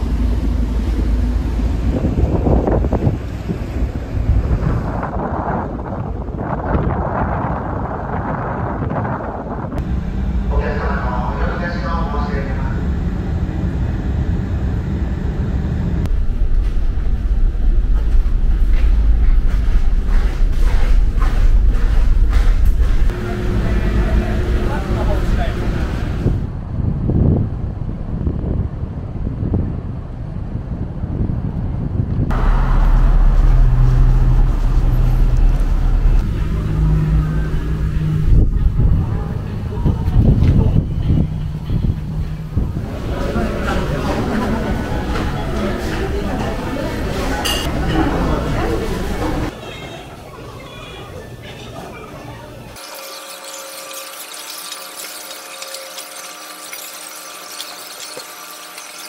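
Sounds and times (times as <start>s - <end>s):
wind buffeting microphone: 0.0s - 9.9s, 15.8s - 44.9s
steady hum and hiss: 9.8s - 26.5s
vehicle engine rumble and hum: 12.4s - 47.7s.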